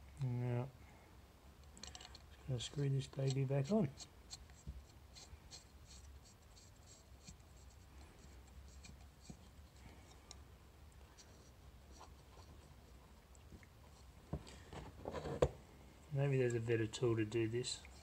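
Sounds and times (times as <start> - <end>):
light clicks of parts screwed together: 1.6 - 2.3
faint scratching: 1.8 - 15.5.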